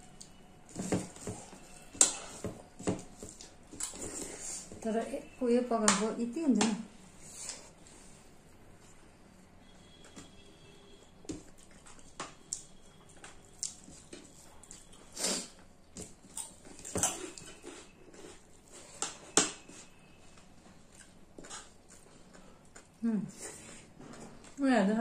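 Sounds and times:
chewing and mouth noises: 11.4s - 19.2s, 20.8s - 23.9s.

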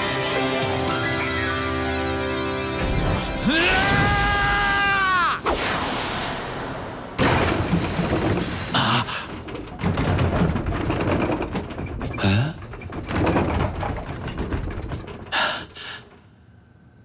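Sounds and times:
thuds and impacts: 7.2s - 15.3s.

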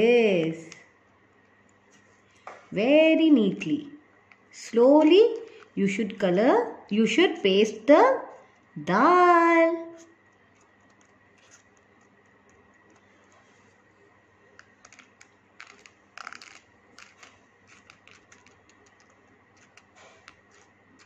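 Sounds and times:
fingertips tapping grains on paper: 10.1s - 13.9s, 14.5s - 21.0s.

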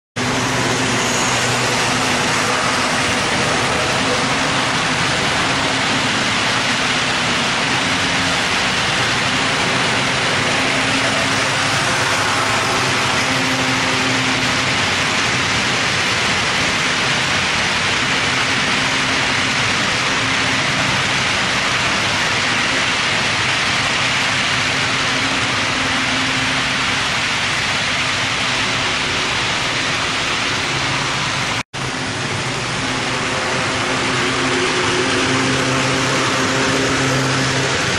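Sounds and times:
model train wheels whirring: 0.2s - 37.9s.

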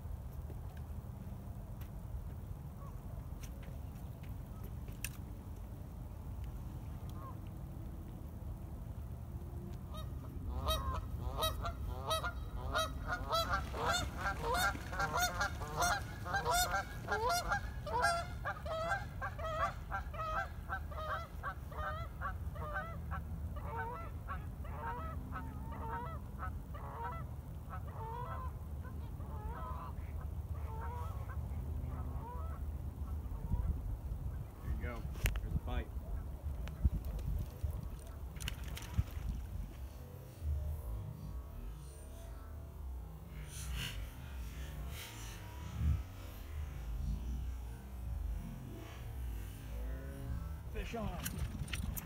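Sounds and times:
flock of birds calling: 10.6s - 22.9s.

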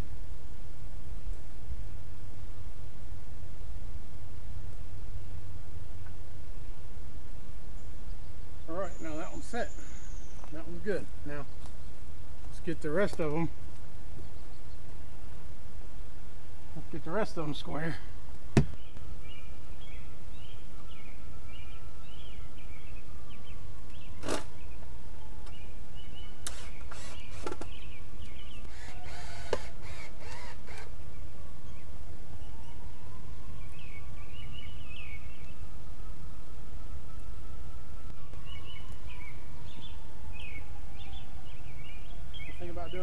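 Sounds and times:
birds calling: 7.4s - 15.6s, 16.5s - 32.8s, 38.1s - 43.0s
distant siren: 8.7s - 11.2s, 19.0s - 43.0s
boards knocking against wooden posts: 18.5s - 18.8s.

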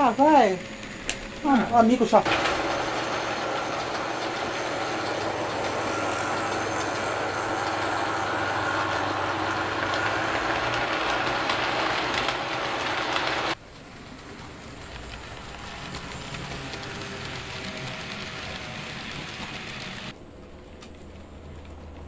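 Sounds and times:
model train wheels on rails: 0.0s - 22.0s.

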